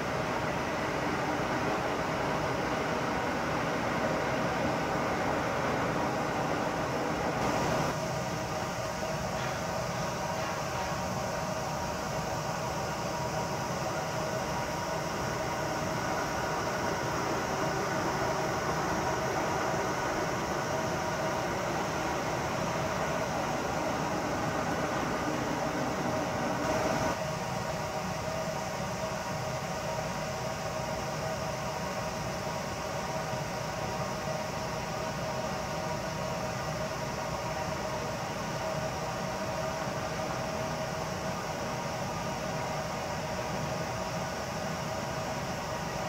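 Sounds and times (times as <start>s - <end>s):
distant electric trains passing: 0.0s - 30.5s.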